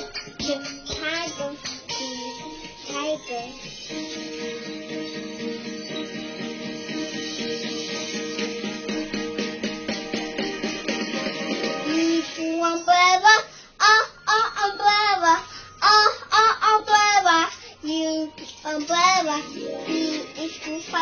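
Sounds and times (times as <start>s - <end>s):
child singing: 0.0s - 3.6s, 11.8s - 21.0s
backing music: 0.0s - 12.9s, 17.9s - 21.0s.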